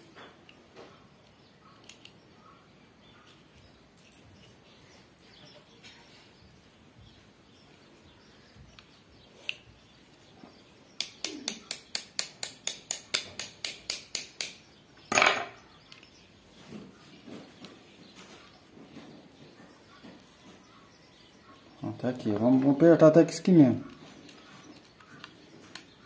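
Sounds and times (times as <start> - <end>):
hand tool sharp clicks: 11.0 - 15.2.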